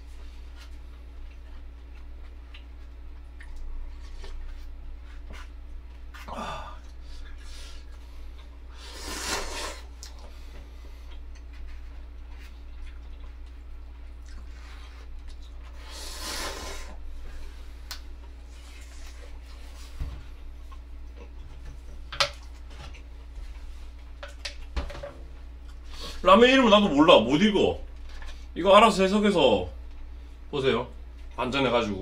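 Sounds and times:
steady low hum: 0.0 - 32.0
noisy slurps of ramen: 8.8 - 9.9, 15.8 - 17.0.

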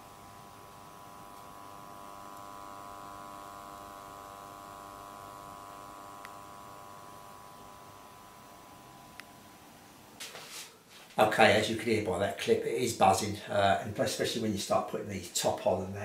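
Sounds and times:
transformer buzzing: 0.0 - 9.6
faint click: 6.2 - 6.4.

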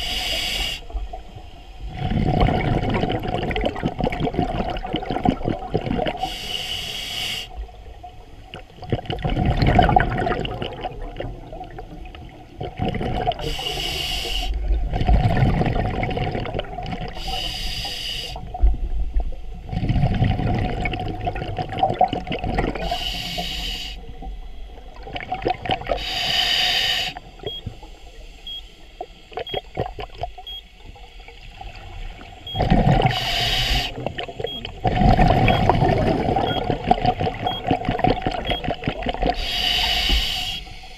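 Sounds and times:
diver inhaling through regulator: 0.0 - 1.0, 6.1 - 7.6, 13.4 - 14.7, 17.1 - 18.5, 22.7 - 24.1, 25.9 - 28.3, 32.6 - 35.6, 39.2 - 40.9
bubbling exhalation underwater: 1.9 - 6.2, 8.5 - 11.9, 12.5 - 13.6, 14.6 - 17.2, 19.7 - 23.0, 25.0 - 26.0, 32.6 - 39.5.

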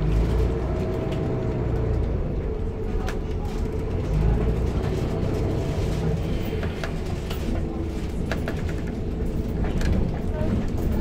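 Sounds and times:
bus interior rattles and clicks: 0.0 - 11.0
diesel bus engine rumble: 0.0 - 11.0.

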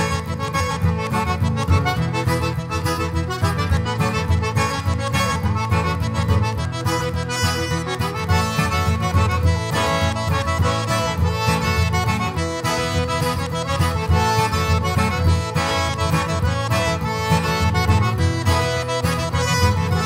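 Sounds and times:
accordion band dance music: 0.0 - 20.0.

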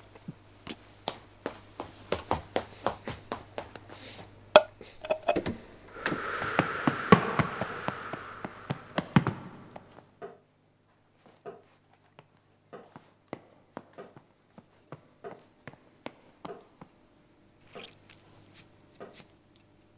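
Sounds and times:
hissing rush: 5.9 - 10.0.

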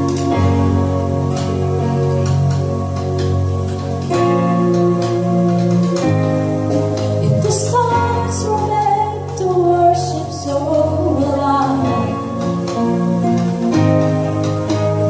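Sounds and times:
band playing slow song: 0.0 - 15.0
held keyboard chords: 0.0 - 15.0
woman singing: 7.2 - 12.5.

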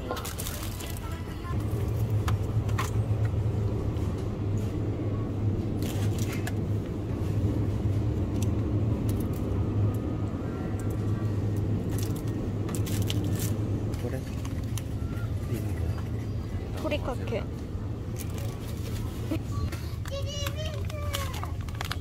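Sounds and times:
cans and packaging clicking and rustling: 19.9 - 22.0.

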